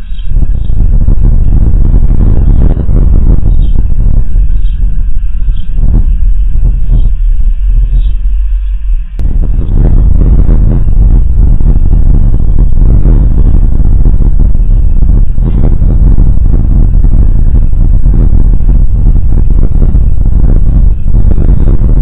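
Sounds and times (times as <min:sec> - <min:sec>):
wind buffeting microphone: 0:00.0 - 0:08.5, 0:09.2 - 0:22.0.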